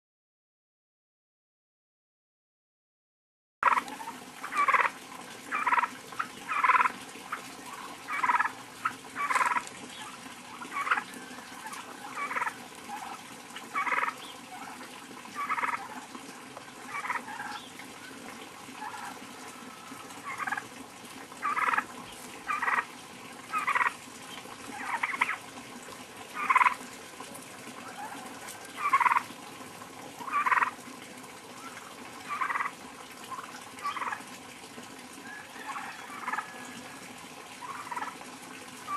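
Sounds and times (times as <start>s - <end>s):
turkeys calling: 3.6s - 20.7s, 21.4s - 22.9s, 23.5s - 25.4s, 26.3s - 26.9s, 27.7s - 29.4s, 30.2s - 30.8s, 31.6s - 34.2s, 35.2s - 37.0s, 37.6s - 38.2s.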